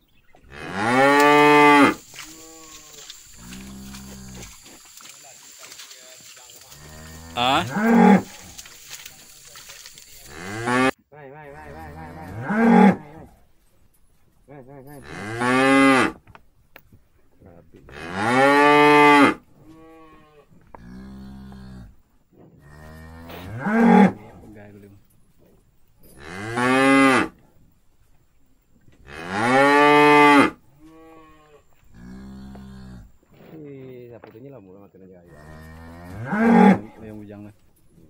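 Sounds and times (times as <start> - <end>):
cows mooing: 0.5 - 4.7, 6.6 - 13.3, 14.9 - 16.2, 17.9 - 22.0, 22.6 - 24.4, 29.0 - 33.2, 35.3 - 37.1.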